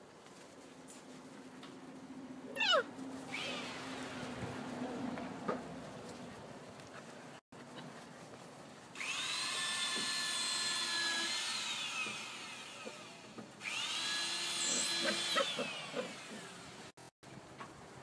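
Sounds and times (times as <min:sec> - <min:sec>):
small electric motor whining: 0:09.0 - 0:16.8.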